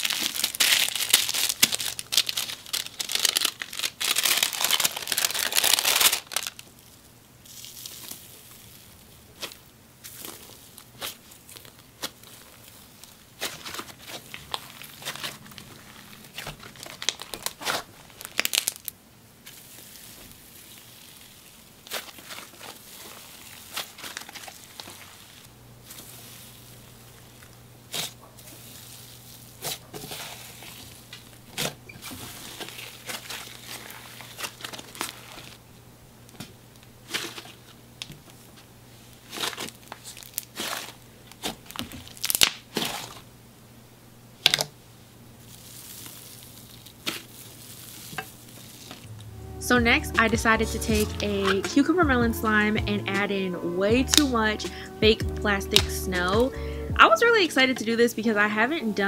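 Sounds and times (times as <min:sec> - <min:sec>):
foil crinkling in slime: 0:00.0 - 0:35.6, 0:36.8 - 0:43.3, 0:45.4 - 0:49.2, 0:54.0 - 0:54.4.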